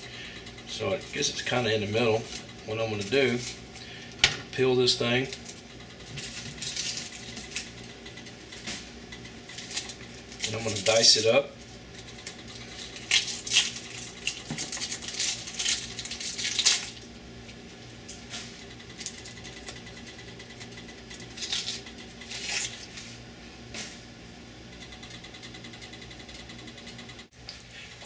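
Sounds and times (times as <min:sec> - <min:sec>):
onion skin crackling and tearing: 0:05.3 - 0:07.8, 0:09.5 - 0:11.4, 0:12.0 - 0:18.3, 0:21.1 - 0:23.0.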